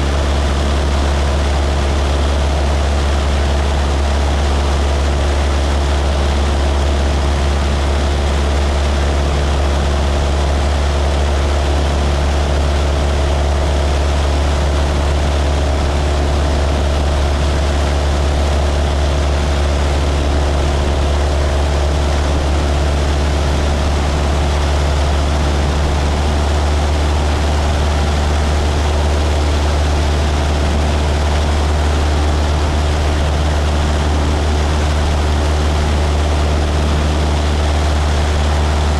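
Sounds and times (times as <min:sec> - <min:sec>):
light airplane engine droning: 0:00.0 - 0:38.9.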